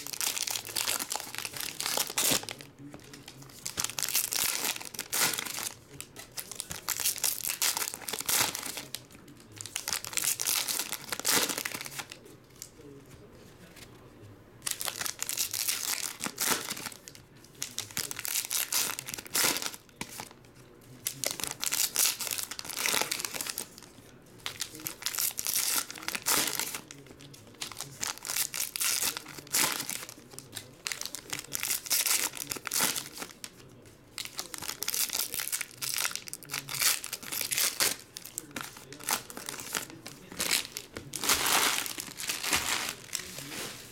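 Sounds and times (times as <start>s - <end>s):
foil wrappers crinkling: 0.0s - 13.0s, 14.6s - 43.9s.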